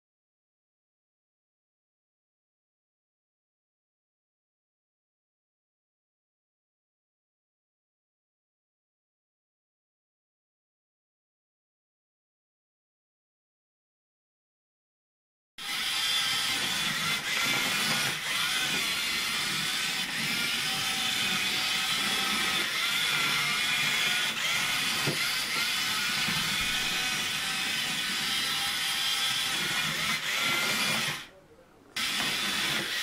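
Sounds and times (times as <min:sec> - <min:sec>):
small electric motor whining: 0:15.6 - 0:31.3, 0:32.0 - 0:33.0.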